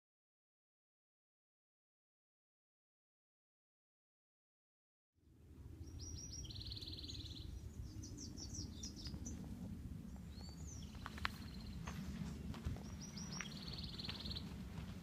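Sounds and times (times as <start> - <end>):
steady low rumble: 5.2 - 15.0
songbirds singing: 5.6 - 15.0
bird song with buzzy trill: 5.7 - 9.4, 10.1 - 12.1, 12.8 - 14.6.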